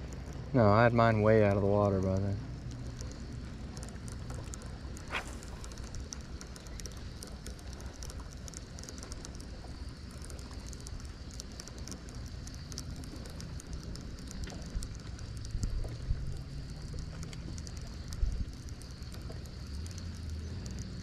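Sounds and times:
fine crackle: 0.0s - 21.0s
low hum: 0.0s - 21.0s
waves lapping against boat hull: 0.0s - 21.0s
low bumps: 3.9s - 6.1s.

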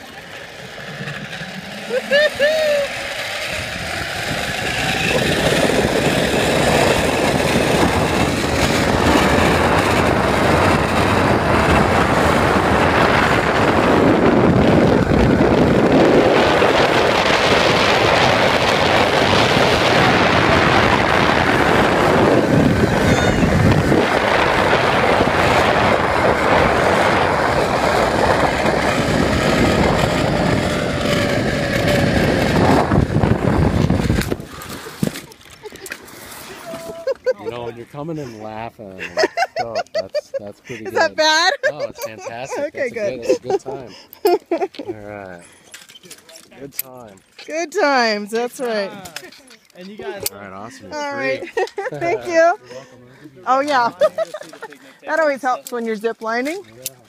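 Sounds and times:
pulleys running along steel cable: 0.0s - 14.0s, 15.1s - 36.7s
wind rushing over microphone: 0.0s - 38.6s.

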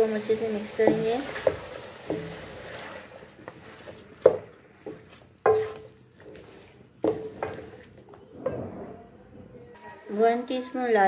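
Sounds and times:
wooden spoon knocking metal pan: 0.7s - 2.6s, 4.2s - 6.0s, 7.0s - 7.9s.

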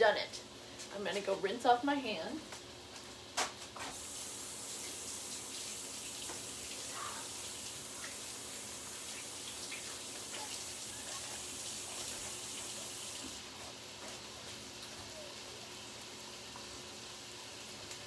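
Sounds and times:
bacon frying in a pan: 0.0s - 18.0s
kitchen tap running: 3.8s - 18.0s.

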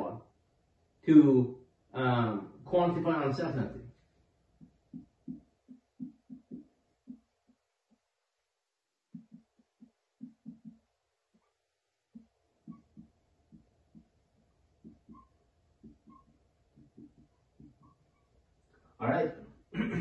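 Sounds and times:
marker writing on whiteboard: 4.6s - 8.0s, 9.1s - 18.3s.

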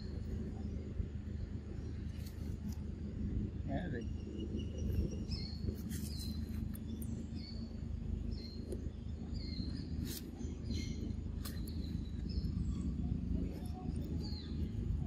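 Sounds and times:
steady low rumble: 0.0s - 15.0s
small birds chirping: 3.6s - 15.0s.

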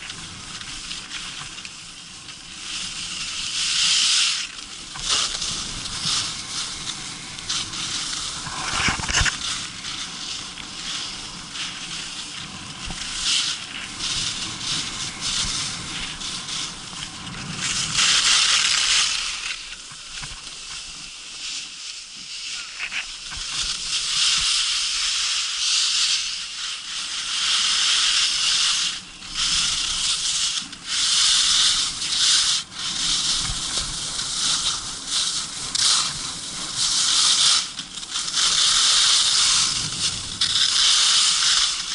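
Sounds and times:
skis scraping and hissing on snow: 0.0s - 41.9s.

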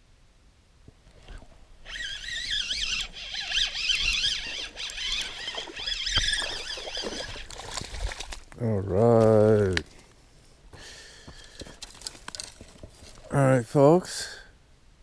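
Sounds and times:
fishing reel whirring: 1.2s - 8.3s.

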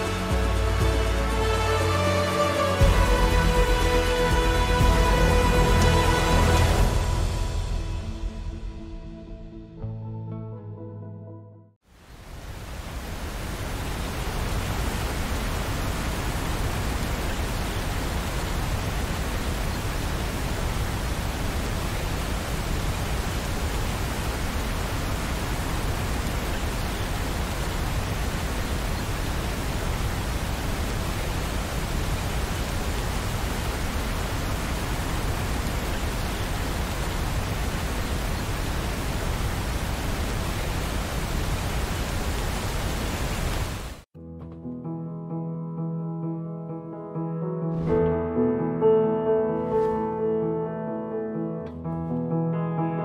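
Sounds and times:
steady rain hiss: 0.0s - 7.4s, 11.9s - 44.1s.

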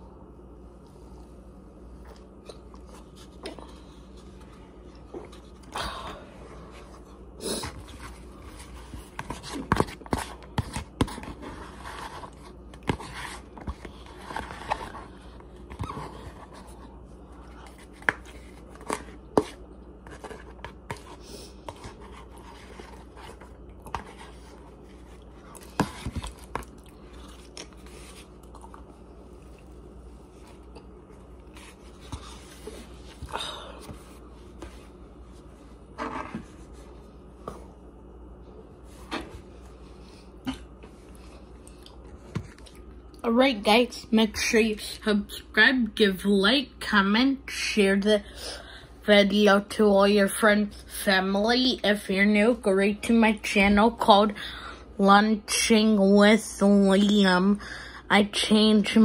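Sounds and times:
chewing: 25.2s - 29.7s.

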